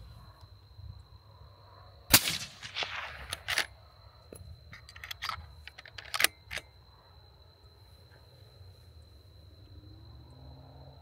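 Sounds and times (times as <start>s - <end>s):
suppressed rifle shot echo: 2.1s - 3.7s
rifle bolt metallic clicks: 2.2s - 3.7s, 4.7s - 6.7s.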